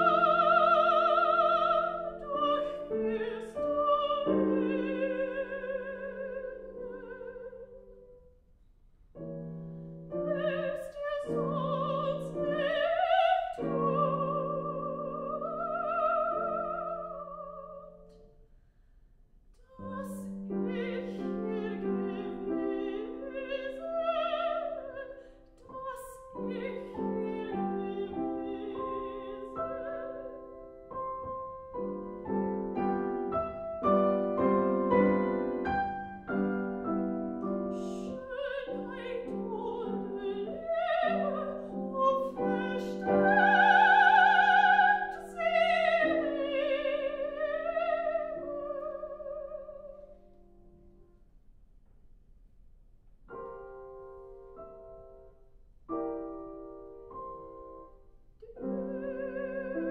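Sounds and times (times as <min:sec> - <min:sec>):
soprano singing: 0:00.0 - 0:08.2, 0:09.9 - 0:18.3, 0:19.6 - 0:50.7, 0:55.9 - 0:59.9
grand piano accompaniment: 0:00.0 - 0:08.4, 0:09.1 - 0:18.5, 0:19.7 - 0:51.3, 0:53.1 - 0:59.9.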